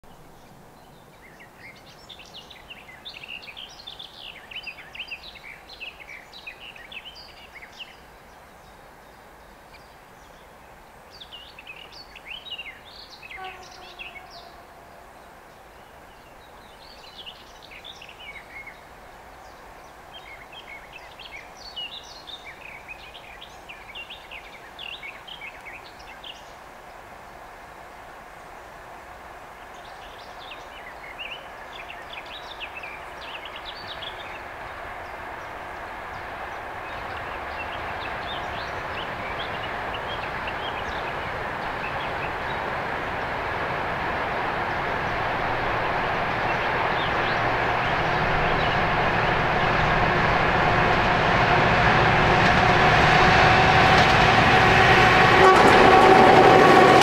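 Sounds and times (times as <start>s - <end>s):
diesel locomotive rumble: 33.8s - 57.0s.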